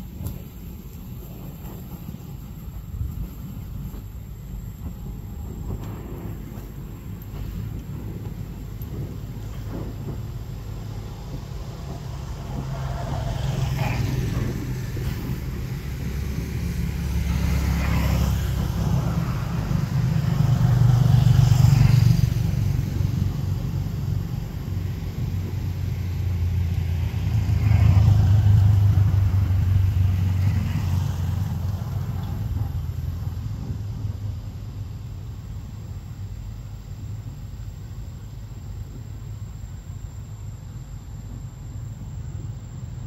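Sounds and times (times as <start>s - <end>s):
vehicles passing by: 6.6s - 34.8s.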